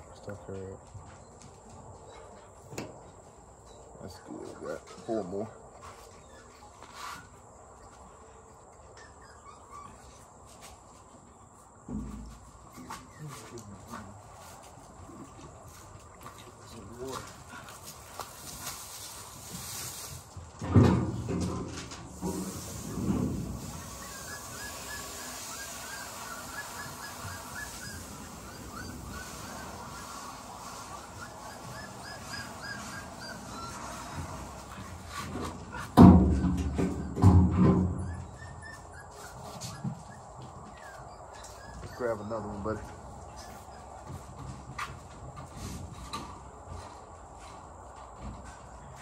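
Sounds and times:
puppies whimpering: 0:03.6 - 0:10.4, 0:12.6 - 0:14.2, 0:23.5 - 0:44.3
insects droning: 0:22.1 - 0:34.6.

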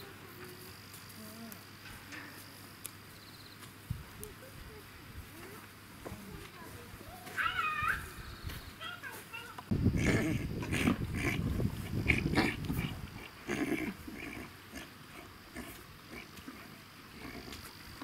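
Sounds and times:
horse snuffling and blowing: 0:09.7 - 0:18.0.

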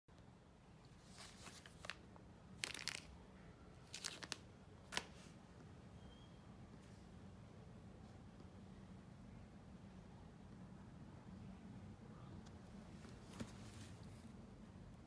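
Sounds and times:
thin plastic crinkling: 0:00.8 - 0:03.2, 0:03.8 - 0:05.3.

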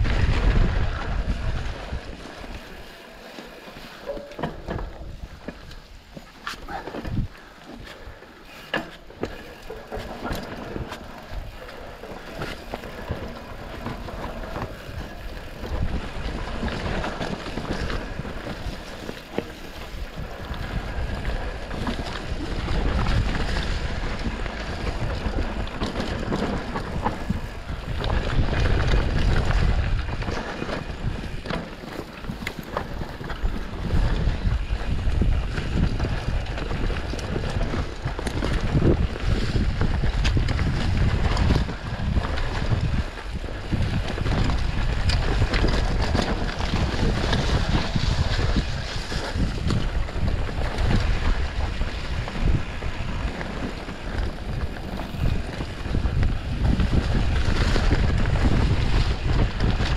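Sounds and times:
wind rushing over microphone: 0:00.0 - 0:03.6, 0:09.3 - 0:59.9
bike tyres knocking and rattling: 0:00.0 - 0:59.9.

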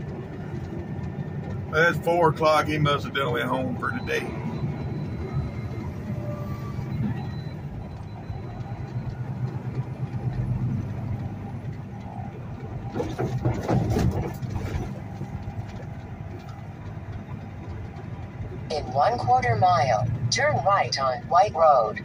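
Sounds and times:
diesel truck engine running: 0:00.0 - 0:22.0
road noise: 0:00.0 - 0:22.0
knocking and rattling: 0:11.7 - 0:18.7.

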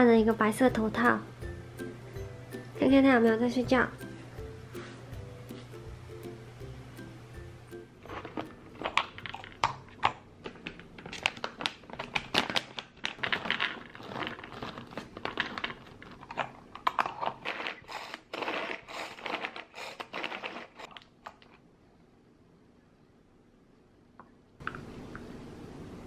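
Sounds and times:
plastic bag crinkling: 0:08.0 - 0:21.0.

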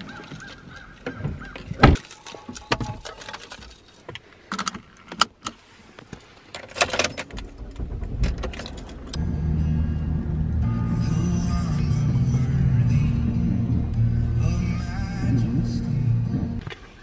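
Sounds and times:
car keys jangling: 0:02.0 - 0:05.6, 0:06.2 - 0:09.2
car engine starting: 0:06.6 - 0:16.6
loud thump: 0:07.3 - 0:09.4.

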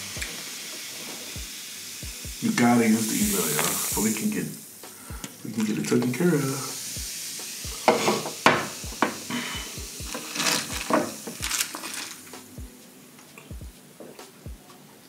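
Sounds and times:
fizzing carbonation hiss: 0:00.0 - 0:15.0
ice cubes clinking in glass: 0:10.1 - 0:12.3.

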